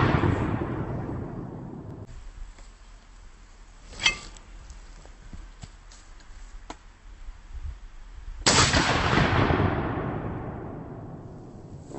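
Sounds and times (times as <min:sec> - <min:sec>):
shotgun blast: 0:08.5 - 0:11.2.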